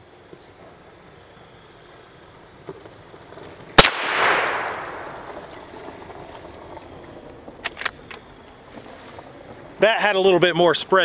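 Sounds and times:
shotgun shot with echo: 3.8s - 5.4s.

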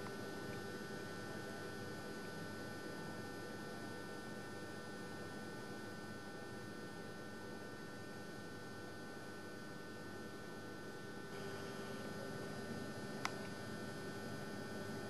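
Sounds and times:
faint high whine: 4.8s - 15.0s.

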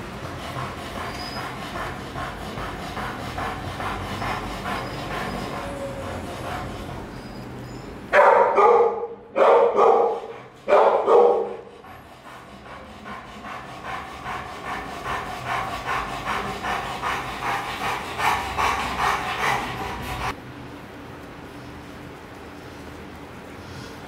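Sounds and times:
dog panting rapidly: 0.0s - 20.4s
dog barking: 8.1s - 11.7s.

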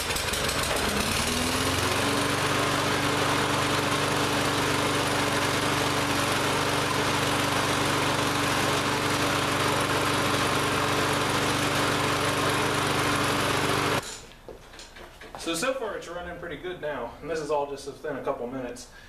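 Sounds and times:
lawn mower engine running: 0.0s - 14.0s.

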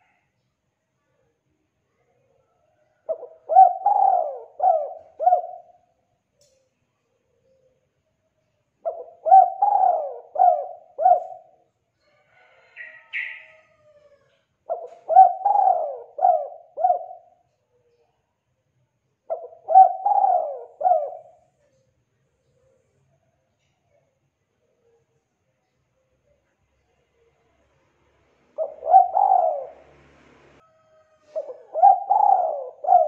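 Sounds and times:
dove cooing: 3.0s - 5.8s, 8.8s - 11.6s, 12.8s - 17.4s, 19.3s - 21.5s, 28.5s - 30.0s, 30.9s - 33.0s.

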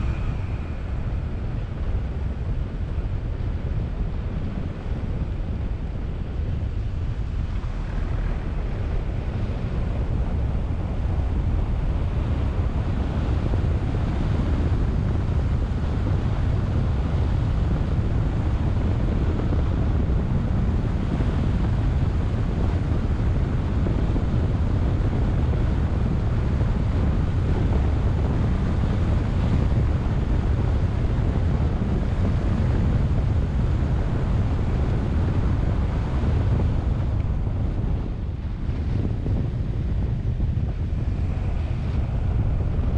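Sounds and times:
car road noise on paved lane: 0.0s - 42.9s
wind buffeting microphone: 0.0s - 42.9s.

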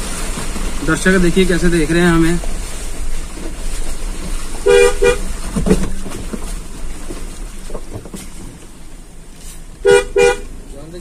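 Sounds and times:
car engine running: 0.0s - 11.0s
car horn toots: 4.6s - 5.3s, 9.8s - 10.6s.

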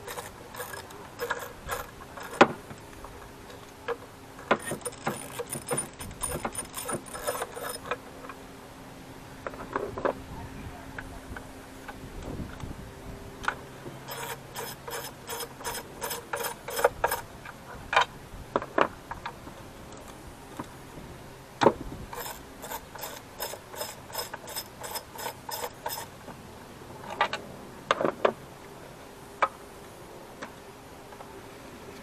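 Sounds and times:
ratchet wrench clicking: 0.0s - 2.4s, 4.6s - 8.0s, 14.1s - 17.2s, 22.1s - 26.1s.

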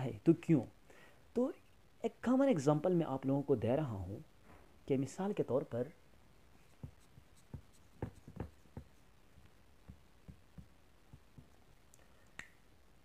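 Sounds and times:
duster wiping whiteboard: 6.6s - 9.0s.

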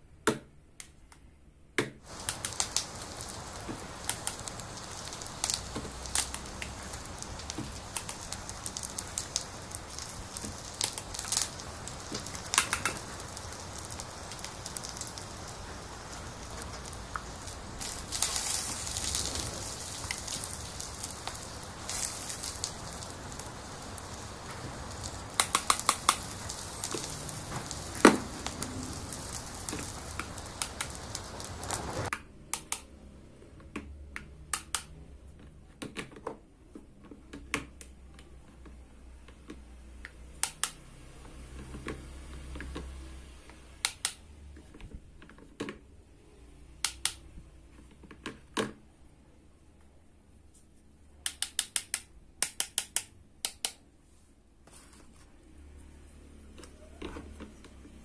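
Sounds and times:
plastic toys tapping: 1.8s - 15.7s, 24.1s - 31.1s
steaming toy pot hissing: 2.1s - 32.1s
sharp clicks: 2.1s - 32.9s, 40.4s - 40.8s, 51.2s - 53.8s.

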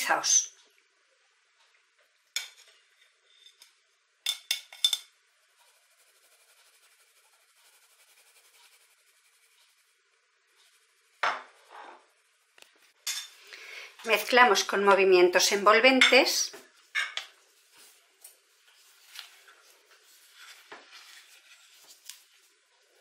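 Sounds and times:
metal sieve clinking on glass bowl: 4.3s - 5.1s
faint rustle of sifting powder: 5.4s - 13.0s, 17.4s - 23.0s.

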